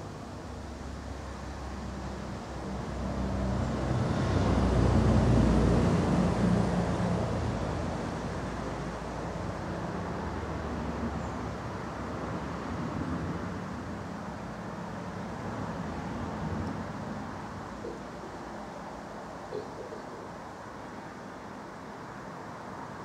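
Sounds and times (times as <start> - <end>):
steady background hum: 13.3 - 22.2.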